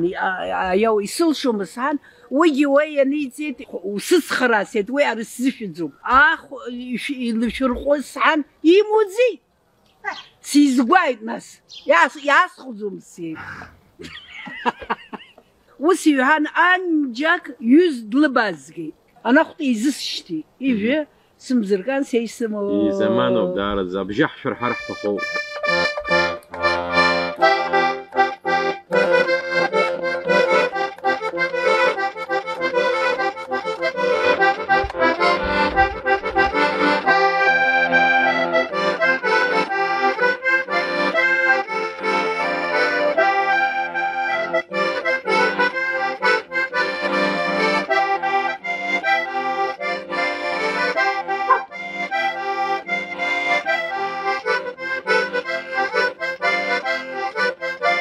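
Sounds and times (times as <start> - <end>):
button accordion playing a melody: 0.0 - 9.1, 22.6 - 58.0.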